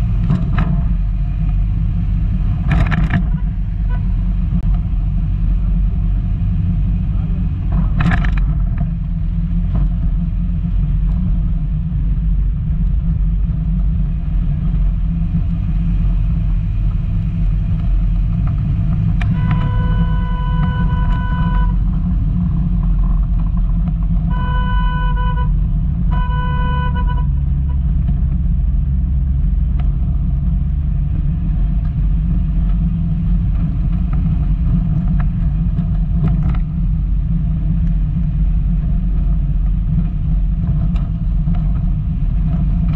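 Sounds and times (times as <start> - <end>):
car engine and road rumble: 0.0 - 42.9
car horn honking: 19.3 - 21.8, 24.3 - 27.4.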